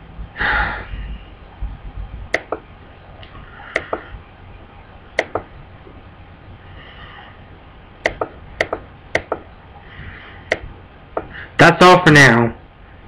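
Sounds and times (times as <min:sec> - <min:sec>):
sharp clicks: 0:02.3 - 0:04.1, 0:05.2 - 0:05.5, 0:08.0 - 0:09.5, 0:10.5 - 0:11.3.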